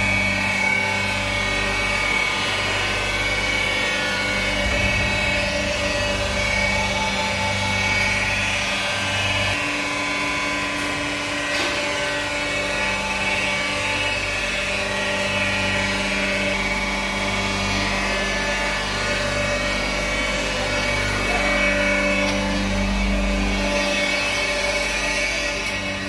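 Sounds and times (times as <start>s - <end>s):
oil filtration machine droning: 0.0s - 26.0s.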